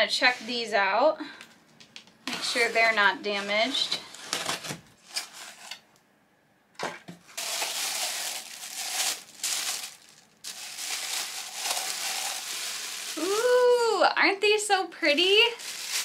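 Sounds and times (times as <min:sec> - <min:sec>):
plastic bag crinkling: 0:07.4 - 0:13.7, 0:15.3 - 0:16.0.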